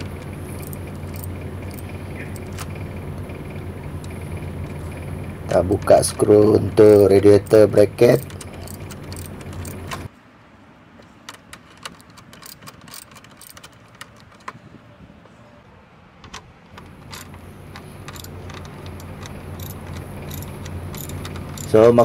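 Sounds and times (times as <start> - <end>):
socket wrench ratcheting: 0.0 - 2.7, 6.9 - 10.1, 11.3 - 14.5, 16.8 - 22.0
steady low hum: 0.0 - 11.2, 13.8 - 22.0.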